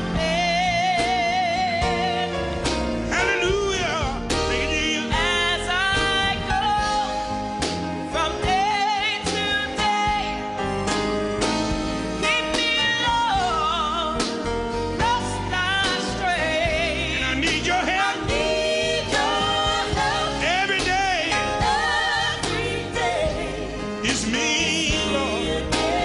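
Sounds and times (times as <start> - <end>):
gospel band with drums: 0.0 - 26.0.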